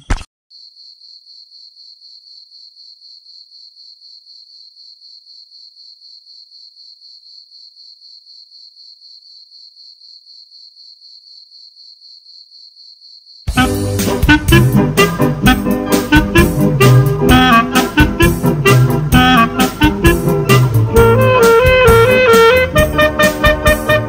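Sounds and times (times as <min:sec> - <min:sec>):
cricket chirping: 0:00.5 - 0:13.5.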